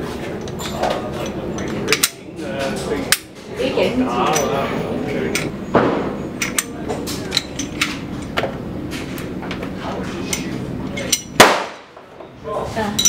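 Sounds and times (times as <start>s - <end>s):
loud metal snap: 11.0s - 12.1s.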